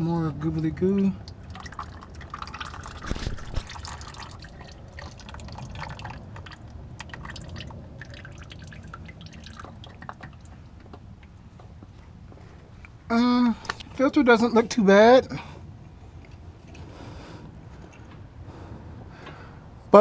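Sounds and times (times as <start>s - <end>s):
fluid dripping: 0.8s - 11.4s.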